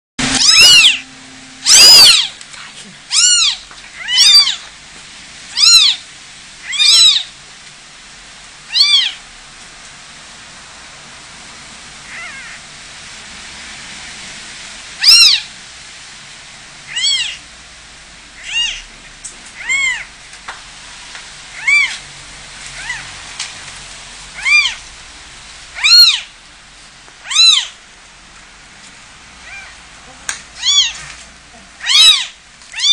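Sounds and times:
newborn kittens mewing: 0.2s - 4.7s, 5.5s - 6.0s, 6.6s - 7.3s, 8.7s - 9.2s, 12.1s - 12.6s, 15.0s - 15.5s, 16.9s - 17.4s, 18.4s - 18.9s, 19.6s - 20.1s, 21.6s - 22.0s, 22.8s - 23.1s, 24.4s - 24.8s, 25.8s - 26.3s, 27.2s - 27.8s, 29.4s - 31.1s, 31.7s - 32.9s
kittens mewing: 1.7s - 4.6s, 8.7s - 9.2s, 25.8s - 26.3s, 27.2s - 27.8s, 29.4s - 29.8s, 30.6s - 31.1s, 31.7s - 32.9s.

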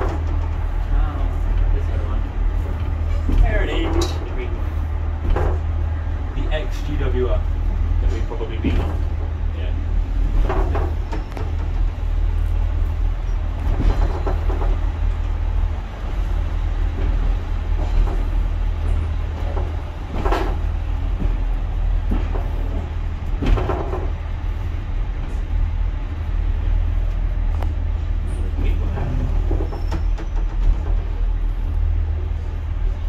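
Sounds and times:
diesel train engine drone: 0.0s - 33.0s
train knocks and clunks: 0.0s - 33.0s.

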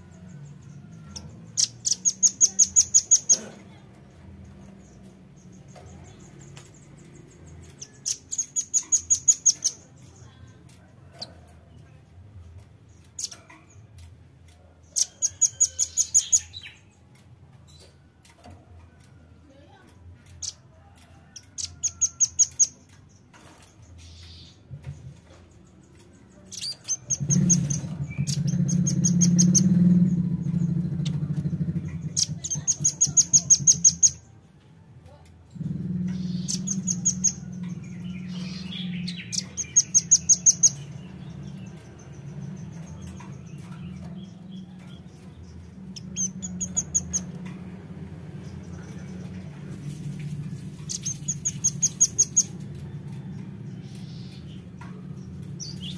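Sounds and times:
steady low hum: 24.8s - 55.9s.

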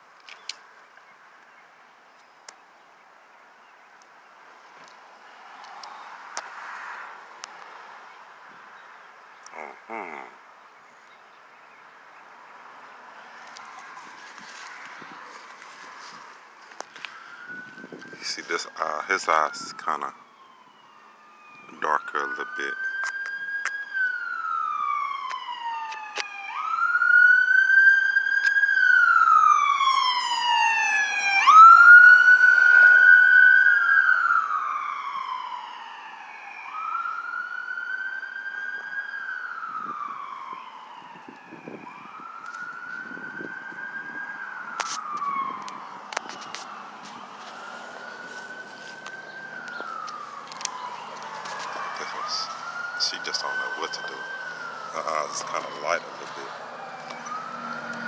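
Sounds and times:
emergency siren wailing: 9.4s - 10.4s, 13.0s - 58.0s.

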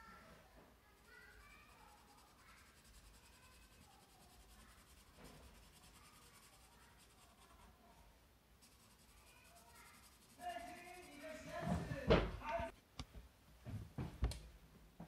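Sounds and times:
faint scratching of pencil on paper: 0.8s - 12.0s.

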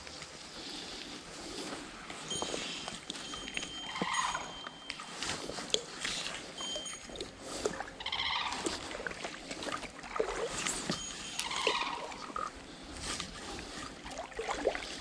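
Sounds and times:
animal calls: 2.3s - 9.7s, 10.5s - 13.8s.

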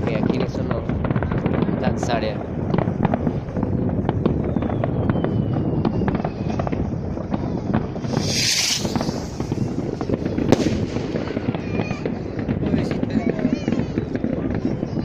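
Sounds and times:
fireworks popping and banging: 0.0s - 15.0s
loud firework hiss: 6.8s - 12.5s.

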